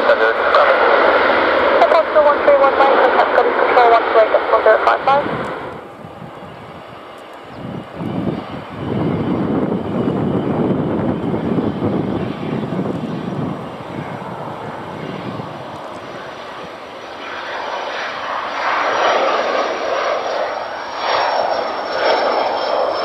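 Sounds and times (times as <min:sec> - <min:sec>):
high jet engine whine: 0:00.0 - 0:23.0
jet engine roar: 0:00.0 - 0:23.0
low rumble: 0:04.6 - 0:18.8.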